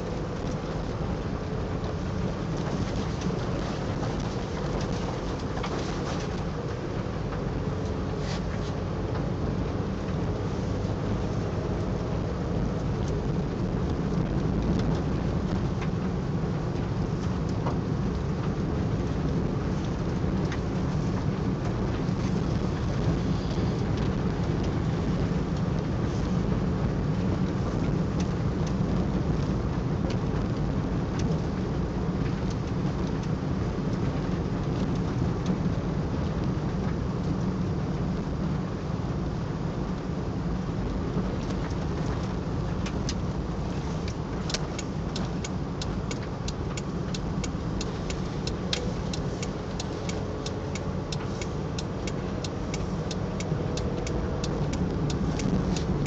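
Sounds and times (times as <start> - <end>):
car road and engine noise: 0.0 - 56.0
faint ticks: 43.8 - 56.0.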